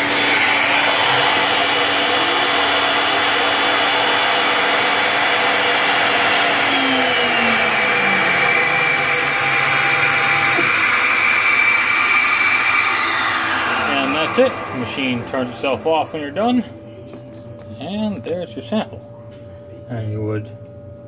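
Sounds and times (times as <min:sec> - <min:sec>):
bit cutting wood: 0:00.0 - 0:15.9
router spindle whining: 0:00.0 - 0:16.8
low motor tone: 0:05.3 - 0:17.7.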